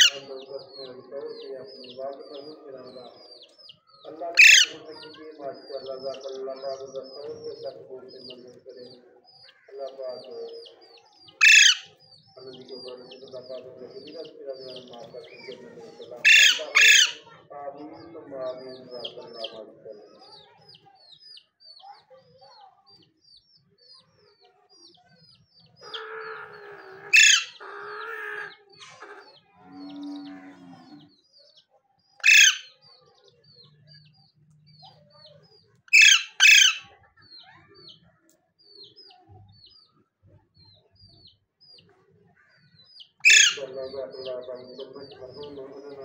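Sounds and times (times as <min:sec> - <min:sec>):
parakeet screeching: 0:00.0 - 0:00.3, 0:04.3 - 0:05.0, 0:11.3 - 0:12.1, 0:15.2 - 0:17.3, 0:25.8 - 0:29.4, 0:32.2 - 0:32.9, 0:35.9 - 0:36.9, 0:43.2 - 0:43.8.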